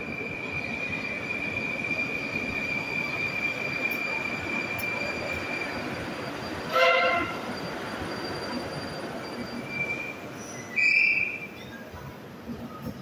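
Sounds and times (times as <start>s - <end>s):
train high whine: 0.0s - 13.0s
horn-like tone: 6.7s - 7.5s.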